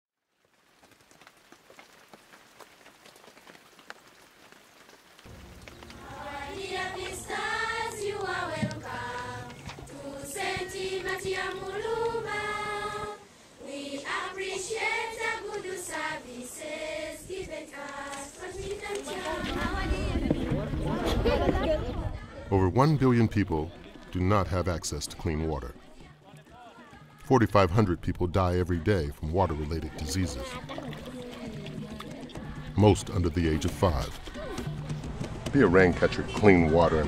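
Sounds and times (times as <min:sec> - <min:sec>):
faint background noise: 0:00.2 - 0:37.0
children's choir singing: 0:05.6 - 0:34.8.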